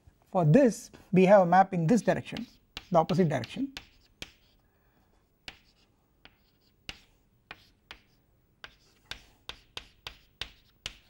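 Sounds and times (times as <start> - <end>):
chalk tapping on blackboard: 2.1 - 4.6, 5.4 - 11.0.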